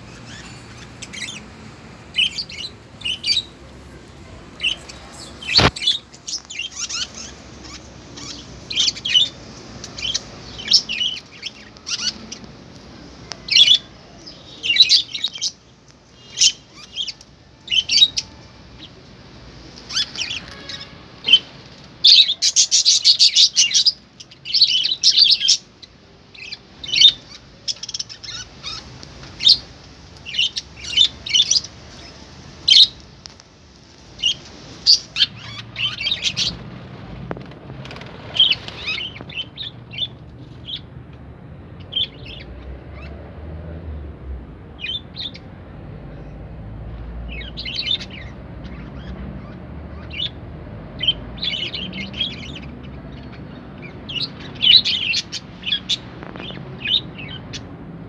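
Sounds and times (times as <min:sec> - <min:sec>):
budgerigars chirping: 0:00.0 - 0:01.5, 0:02.1 - 0:03.5, 0:04.6 - 0:12.5, 0:16.2 - 0:18.9, 0:19.9 - 0:33.0, 0:34.2 - 0:37.0, 0:38.0 - 0:40.9, 0:41.8 - 0:43.2, 0:44.8 - 0:45.5, 0:47.3 - 0:50.4, 0:51.0 - 0:57.7.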